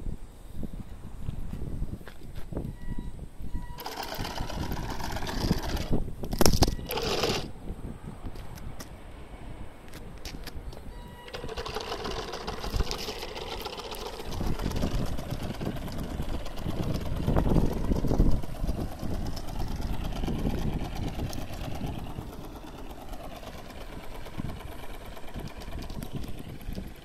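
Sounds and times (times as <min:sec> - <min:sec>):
fin drive mechanical clatter: 0:03.7 - 0:07.5, 0:11.2 - 0:27.0
low rumbling bursts: 0:11.2 - 0:27.0.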